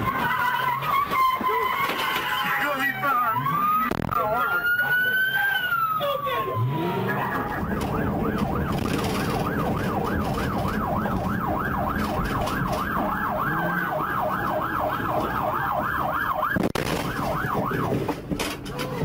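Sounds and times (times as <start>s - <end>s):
police siren yelping: 0.0s - 18.3s
road noise: 0.0s - 19.0s
vehicle engine: 5.7s - 19.0s.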